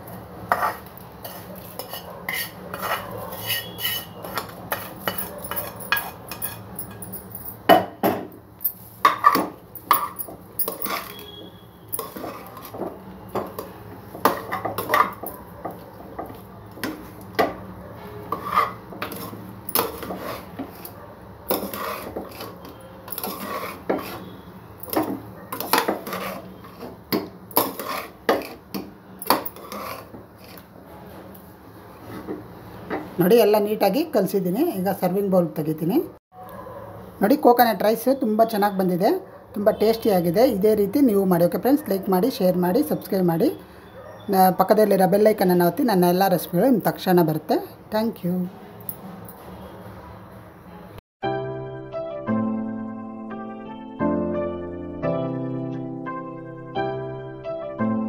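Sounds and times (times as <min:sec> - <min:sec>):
metal spatula scraping a pot: 0:00.5 - 0:07.0, 0:09.0 - 0:15.3, 0:18.0 - 0:32.5.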